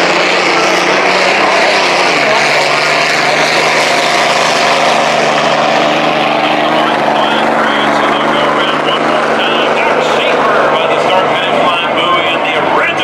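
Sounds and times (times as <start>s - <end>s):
racing boat engine drone: 0.0s - 13.0s.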